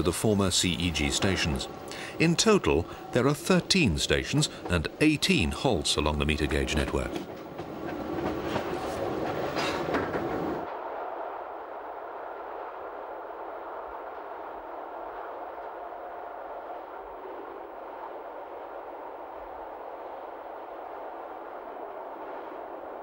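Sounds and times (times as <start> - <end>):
electric train running on rails: 0.0 - 23.0
wheels clicking over rail joints: 0.8 - 10.6.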